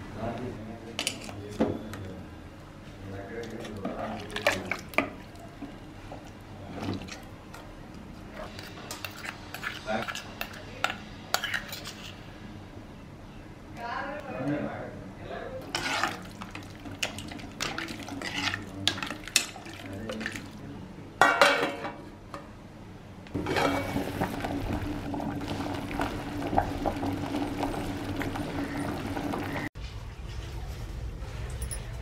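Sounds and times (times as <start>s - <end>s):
metal spoon scraping a pot: 8.3s - 12.3s, 15.7s - 20.4s
soup boiling with bubbling hiss: 15.7s - 20.6s, 23.4s - 29.7s.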